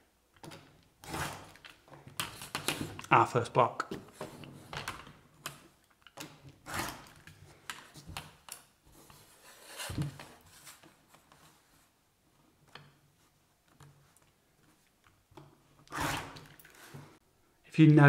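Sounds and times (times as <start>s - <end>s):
rotary cutter scraping fabric: 1.0s - 1.6s, 6.6s - 7.2s, 15.9s - 17.0s.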